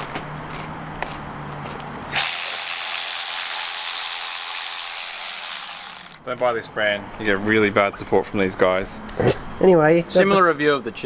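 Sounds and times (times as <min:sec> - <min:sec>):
power ratchet wrench whirring: 0:02.1 - 0:06.2.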